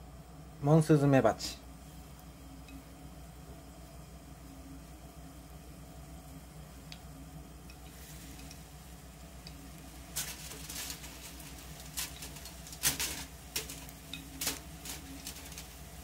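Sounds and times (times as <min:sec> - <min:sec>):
oil sizzling in skillet: 0:07.6 - 0:16.0
oil spattering and crackling: 0:09.3 - 0:16.0.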